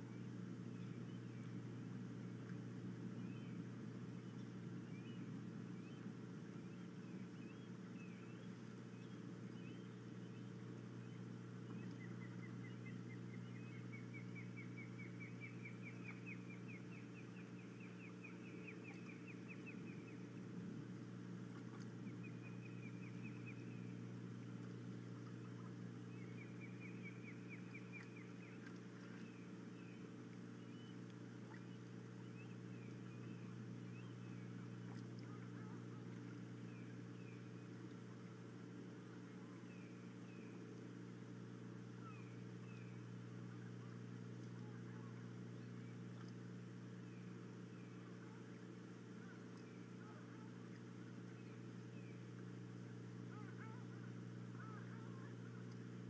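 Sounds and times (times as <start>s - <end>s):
low hum: 0.0s - 56.0s
osprey whistled chirps: 6.7s - 20.3s, 22.0s - 24.0s, 26.1s - 34.6s, 42.0s - 43.1s.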